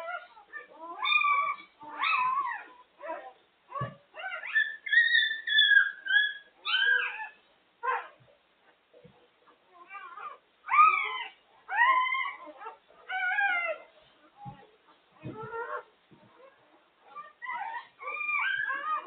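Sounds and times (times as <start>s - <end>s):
puppies crying and whimpering: 0.0s - 8.2s, 9.7s - 19.0s
soft thump: 15.2s - 16.3s.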